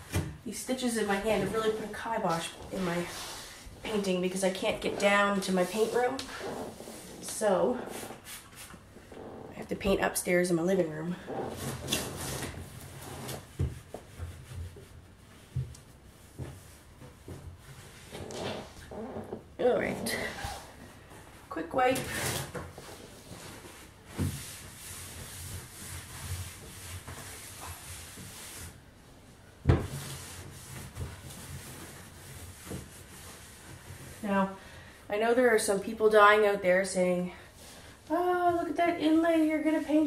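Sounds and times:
cloth rubbing on wood: 0.8s - 10.0s, 11.2s - 28.9s, 29.8s - 34.6s
cloth wiping wood: 1.0s - 9.4s, 30.0s - 34.5s.

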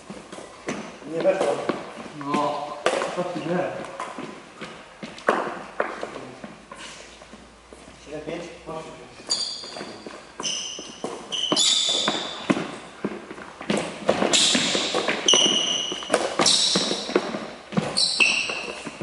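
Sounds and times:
sports shoes squeaking: 0.0s - 8.0s, 8.8s - 19.0s
racket hitting shuttlecock: 10.9s - 19.0s.

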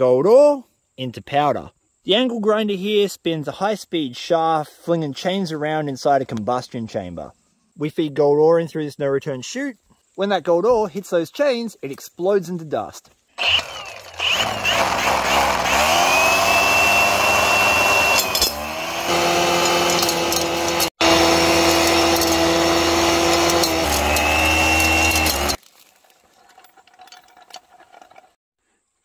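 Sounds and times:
angle grinder whine: 13.4s - 25.6s
chains clattering on rock: 18.1s - 18.6s, 19.5s - 20.9s, 21.7s - 28.4s.

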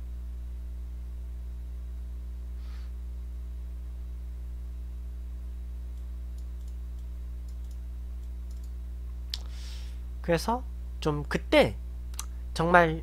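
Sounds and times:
low electrical hum: 0.0s - 13.0s
faint clicks: 5.9s - 9.5s, 12.1s - 12.4s.

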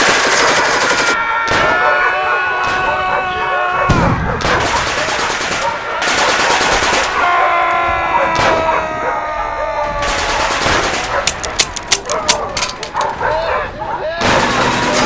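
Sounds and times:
machine-gun fire: 0.0s - 1.8s, 4.0s - 7.2s, 10.0s - 11.6s, 14.2s - 15.0s.

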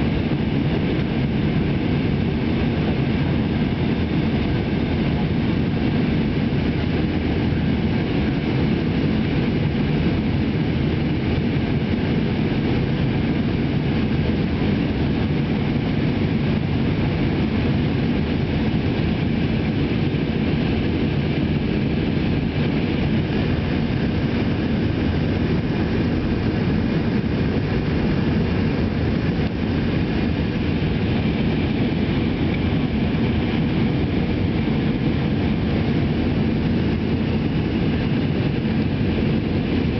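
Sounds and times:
jet cabin engine drone: 0.0s - 39.9s.

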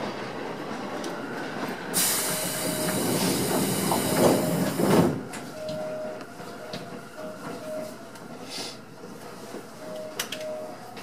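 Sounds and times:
loud hiss of escaping air: 2.0s - 4.7s.

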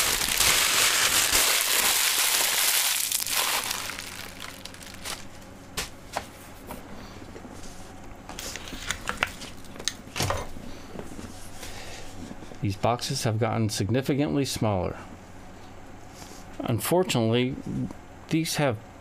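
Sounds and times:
packaging crinkling: 0.0s - 5.4s.

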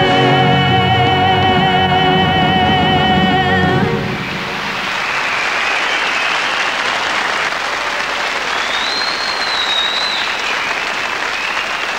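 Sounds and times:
audience applauding: 4.2s - 11.9s.

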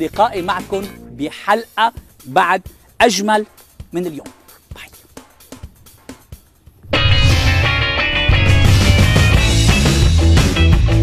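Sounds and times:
music with deep bass: 3.9s - 11.0s.

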